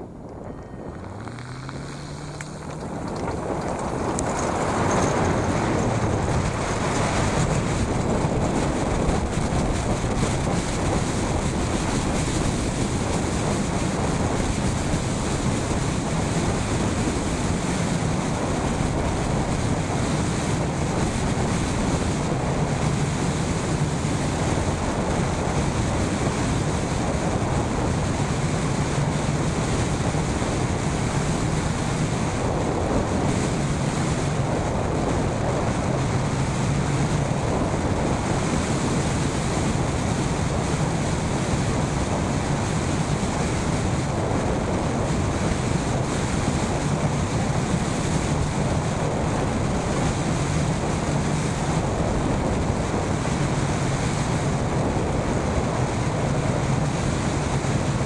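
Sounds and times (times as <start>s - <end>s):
wind rushing over microphone: 0.0s - 58.0s.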